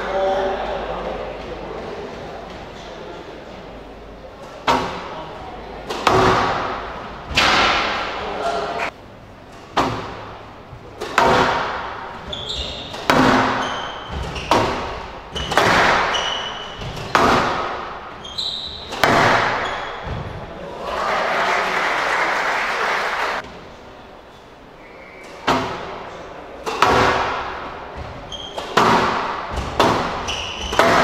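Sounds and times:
steady broad noise: 0:00.0 - 0:31.0
squash ball hitting walls: 0:04.5 - 0:08.4, 0:09.5 - 0:20.5, 0:25.4 - 0:26.0, 0:26.6 - 0:31.0
shoes squeaking on wooden floor: 0:12.1 - 0:20.5, 0:27.9 - 0:31.0.

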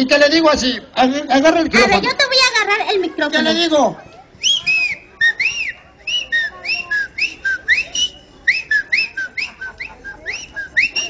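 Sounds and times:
short rising and falling whistles: 0:04.4 - 0:11.0.

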